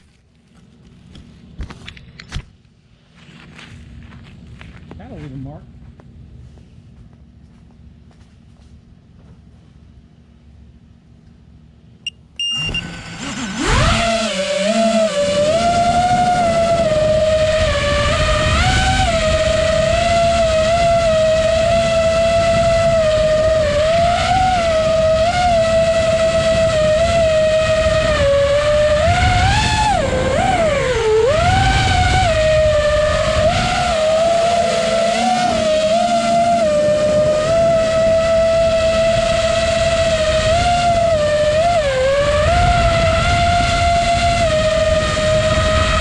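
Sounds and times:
drone motors whining: 11.2s - 46.0s.

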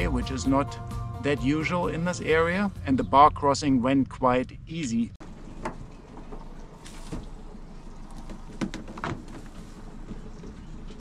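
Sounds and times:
low outdoor rumble: 1.5s - 11.0s
boat gear knocks and clunks: 5.5s - 7.4s, 8.2s - 10.8s.

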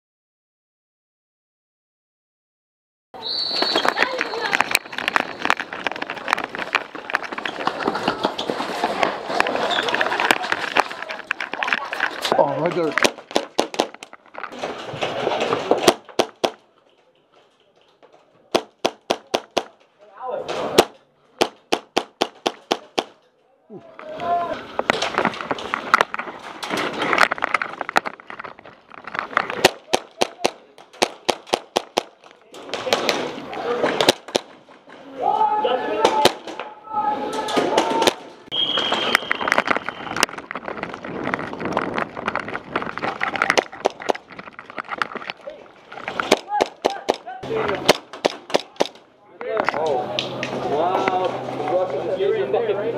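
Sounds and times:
rustling movement: 3.4s - 23.3s, 24.0s - 35.2s, 37.6s - 52.2s
airsoft guns firing: 12.9s - 14.1s, 15.6s - 16.7s, 18.5s - 19.9s, 20.6s - 23.2s, 29.5s - 34.6s, 36.0s - 36.6s, 46.2s - 49.0s
airsoft gun shots: 20.6s - 23.2s, 29.6s - 33.3s.

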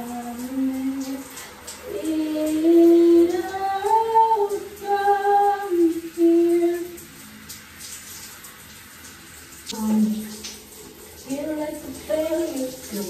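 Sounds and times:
woman singing alone: 1.9s - 6.9s, 11.3s - 13.0s.

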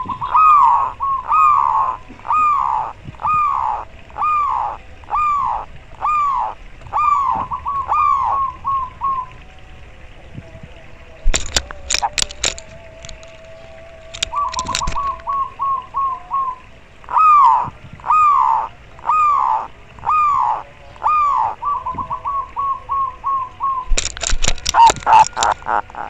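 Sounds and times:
dove cooing: 0.0s - 26.0s
sharp clicks: 11.3s - 15.4s, 23.9s - 25.8s.

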